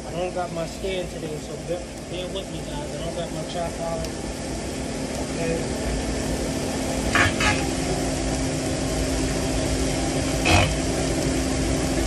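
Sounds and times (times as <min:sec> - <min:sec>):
food sizzling on a griddle: 0:00.0 - 0:12.0
steady hum: 0:00.0 - 0:12.0.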